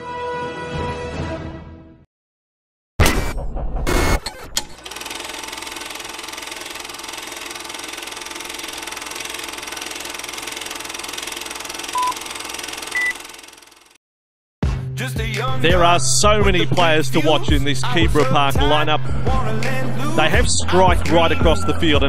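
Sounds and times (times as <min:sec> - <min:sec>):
film projector whirring: 0:04.7 - 0:14.0
short beeps: 0:11.9 - 0:12.2, 0:12.9 - 0:13.2.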